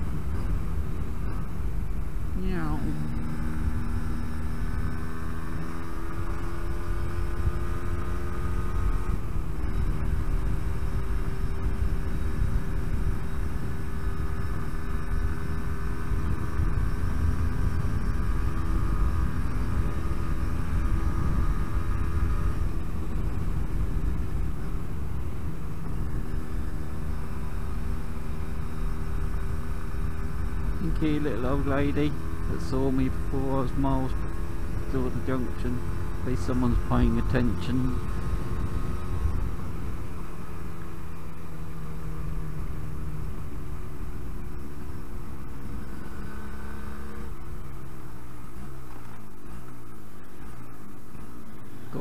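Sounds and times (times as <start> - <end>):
road rumble: 0.0 - 52.0
two-stroke motorcycle engine: 0.0 - 52.0
wind noise: 8.7 - 26.7, 30.6 - 40.2.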